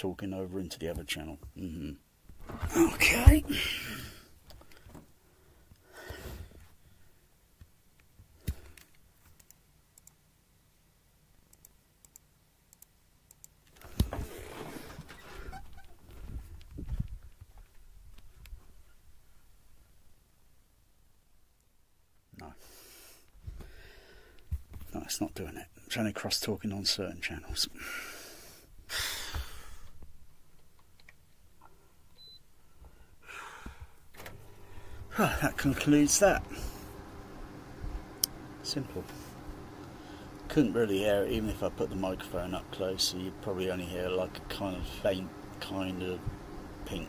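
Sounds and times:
faint scattered clicks: 7.6 - 10.2, 11.4 - 14.1.

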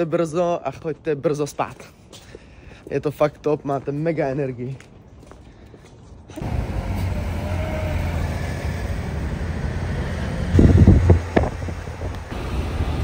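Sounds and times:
car rumbling on the move: 6.4 - 13.0.

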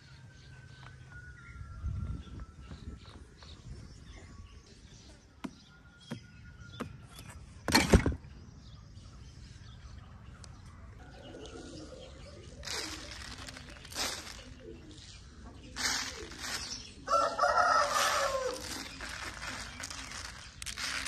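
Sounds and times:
rustling thump: 12.6 - 14.6, 15.8 - 16.8.

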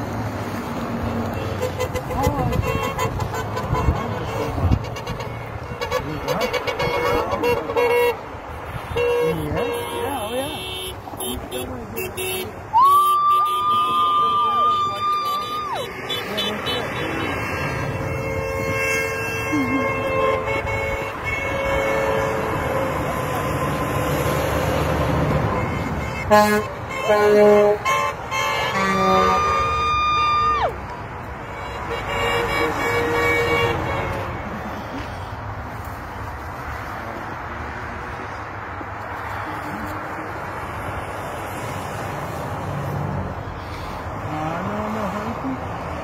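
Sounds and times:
highway traffic rushing: 0.0 - 46.0
car horn honks: 1.3 - 23.8, 25.4 - 30.4, 31.4 - 34.6.

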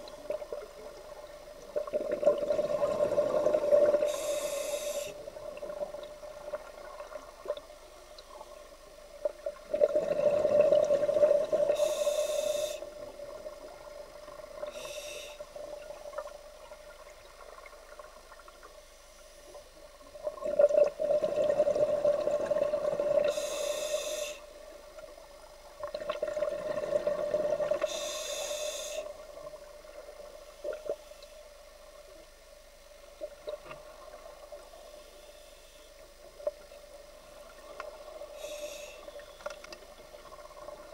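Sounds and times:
steady hum: 0.0 - 25.9
regulator hisses: 4.1 - 5.3, 11.7 - 13.0, 23.3 - 24.5, 27.9 - 29.2.

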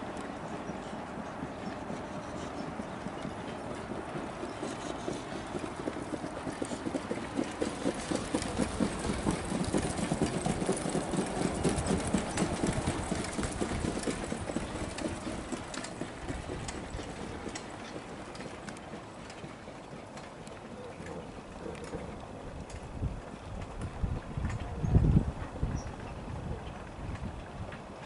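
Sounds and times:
trotting horse hoofbeats: 0.0 - 28.0.

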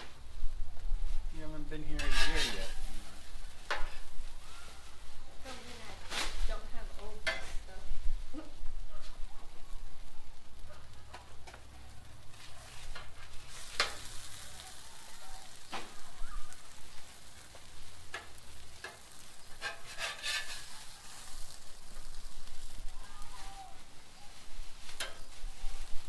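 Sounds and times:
tacos sizzling on a griddle: 0.0 - 26.0
metal spatula scraping steel: 1.8 - 4.1, 7.2 - 7.7, 12.4 - 14.8, 18.1 - 21.8, 24.9 - 25.9.

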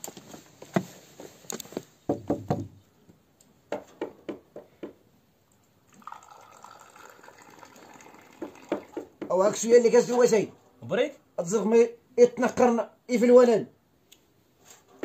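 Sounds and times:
short knocks: 2.1 - 2.8
liquid being poured: 5.9 - 9.2.

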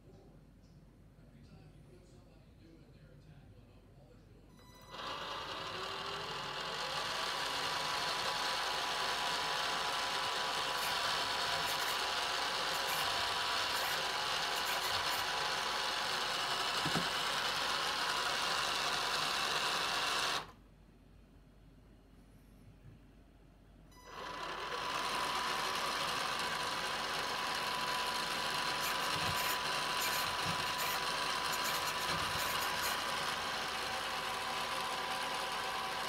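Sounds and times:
electric motor and gears whirring: 4.8 - 20.6, 24.0 - 36.0.

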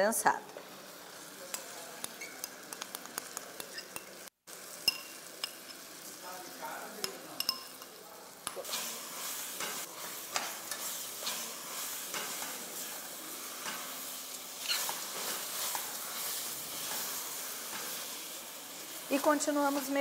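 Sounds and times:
thick mixture sizzling in a pot: 0.0 - 20.0
metal spoon scraping a pot: 3.6 - 4.2, 14.6 - 17.9.

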